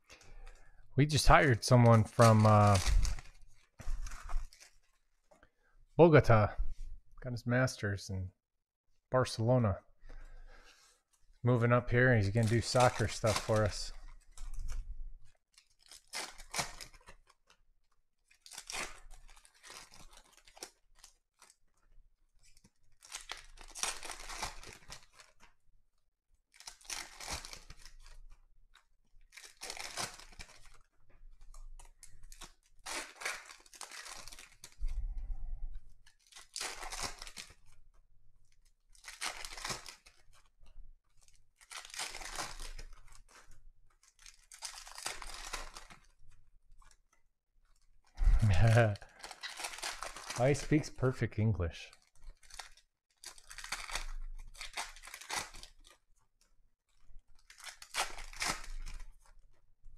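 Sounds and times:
foil wrappers tearing and crinkling: 1.1 - 5.0, 11.9 - 14.9, 15.5 - 17.6, 18.3 - 21.6, 22.5 - 25.5, 26.5 - 28.4, 29.2 - 34.8, 36.0 - 37.8, 38.6 - 47.1, 47.8 - 51.1, 52.0 - 56.0, 56.9 - 59.5.

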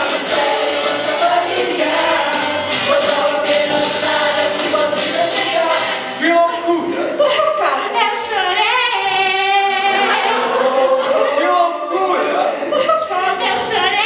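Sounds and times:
drum beat: 0.0 - 6.1
cast singing with band: 0.0 - 12.0.

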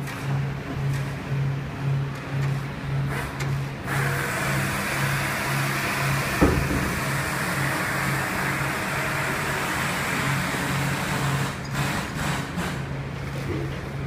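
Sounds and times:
pulsing machinery hum: 0.0 - 14.0
sharp knock: 6.4 - 7.1.

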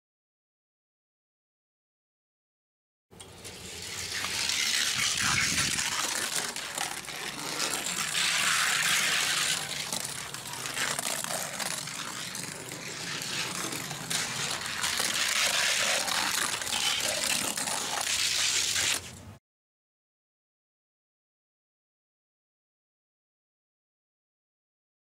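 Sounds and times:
toy car rolling on track: 3.2 - 19.3.

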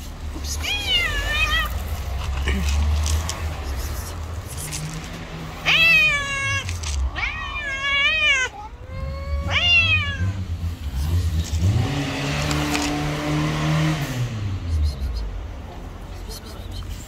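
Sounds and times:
cat meowing: 0.6 - 1.9, 5.6 - 10.4.

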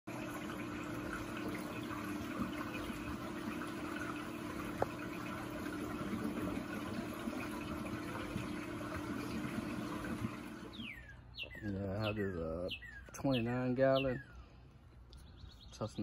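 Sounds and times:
water rushing into overflow: 0.1 - 11.0
low pump hum: 0.1 - 16.0.

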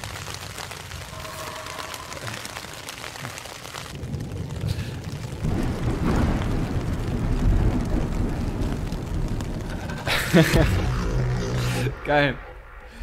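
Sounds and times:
rain pattering: 0.0 - 13.0
deep rumble: 5.4 - 13.0.

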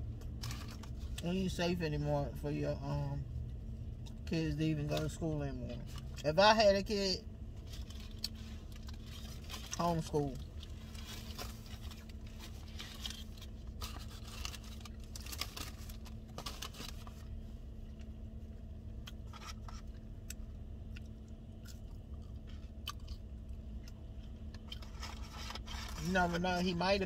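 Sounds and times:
low hum: 0.0 - 27.0
person chewing food: 18.9 - 25.6.

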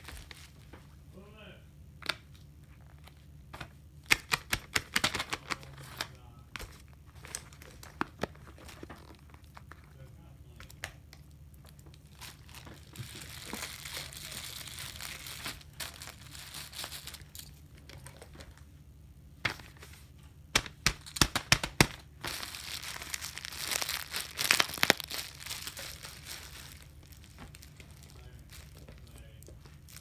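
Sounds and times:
plastic bag crinkling: 0.0 - 0.7, 11.6 - 18.6, 20.9 - 30.0.

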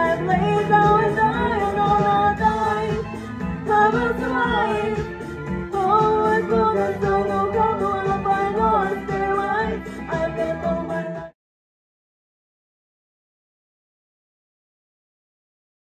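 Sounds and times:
woman singing karaoke: 0.0 - 11.3
backing track music: 0.0 - 11.4.

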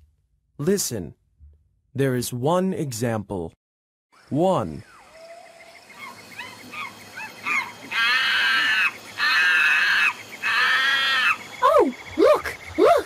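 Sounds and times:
bird chirps: 4.2 - 13.0.

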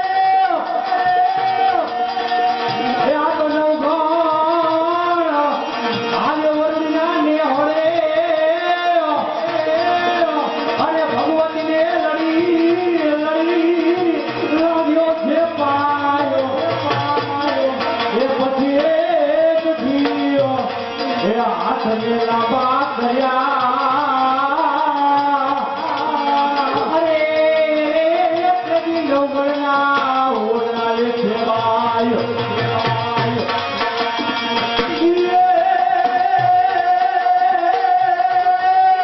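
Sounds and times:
man singing into microphone: 0.0 - 39.0
tabla playing: 0.0 - 39.0.

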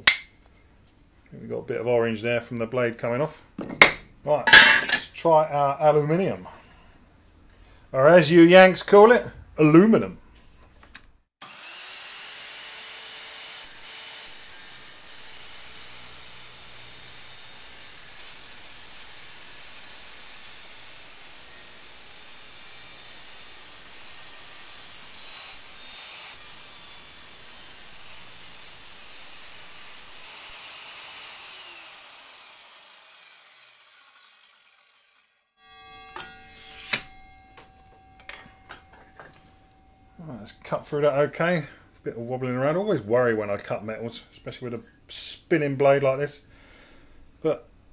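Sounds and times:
mitre saw whining: 11.4 - 41.8.

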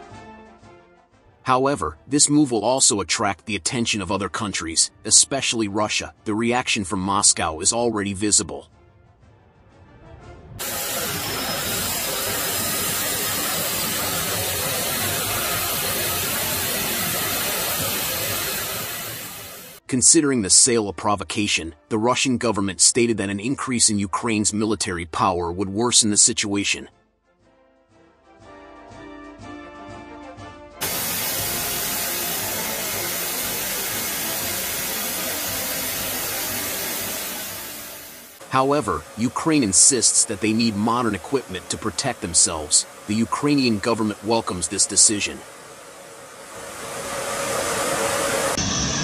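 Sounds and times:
background music: 0.0 - 10.6, 26.7 - 45.3
jet aircraft rushing: 10.6 - 19.8, 30.8 - 49.0.

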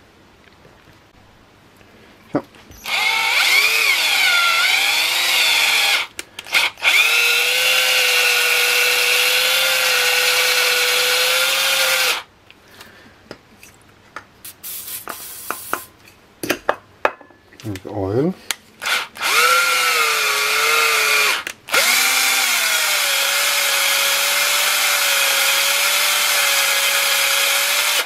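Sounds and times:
cordless drill running: 2.8 - 12.3, 18.8 - 28.0.

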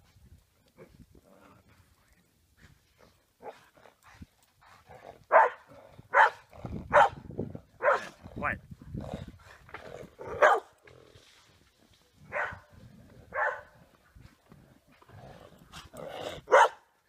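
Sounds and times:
dog barking: 5.3 - 7.2, 7.8 - 8.1, 10.3 - 10.8, 12.3 - 12.7, 13.3 - 13.8, 16.5 - 16.9.

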